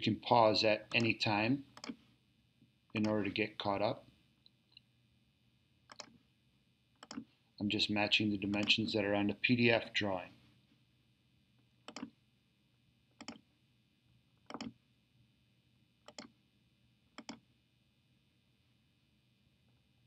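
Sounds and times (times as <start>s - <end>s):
computer mouse clicks: 0.9s - 2.0s, 3.0s - 3.2s, 5.9s - 6.2s, 7.0s - 7.3s, 8.5s - 8.8s, 11.8s - 12.2s, 13.2s - 13.4s, 14.4s - 14.8s, 16.0s - 16.4s, 17.2s - 17.4s.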